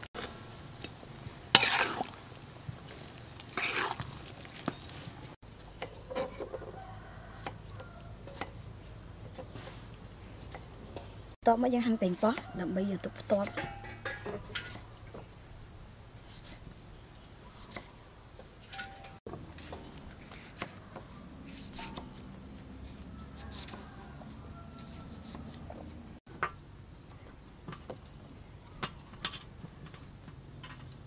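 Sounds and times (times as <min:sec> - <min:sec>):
small birds chirping: 0:08.6 - 0:11.4, 0:26.9 - 0:29.0.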